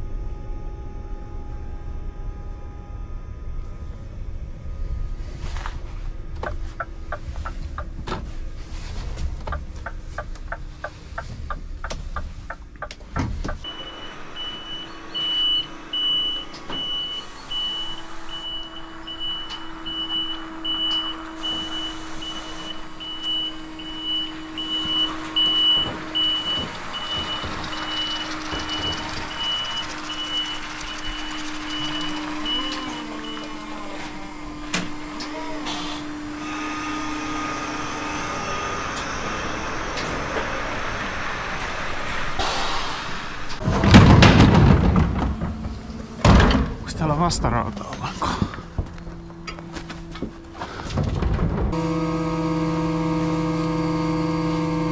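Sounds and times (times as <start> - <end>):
low rumble with rapid clicks: 0.0 - 34.7, 38.9 - 51.8
hydraulic pump humming: 6.2 - 54.9
warning beeps: 13.6 - 34.1
wheelie bin knocking and rattling: 24.2 - 32.5, 43.6 - 46.9.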